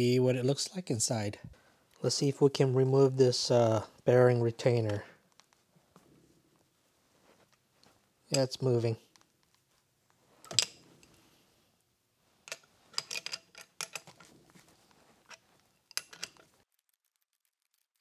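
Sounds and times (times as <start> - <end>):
wrench clicking on metal: 12.5 - 14.2, 15.3 - 16.5.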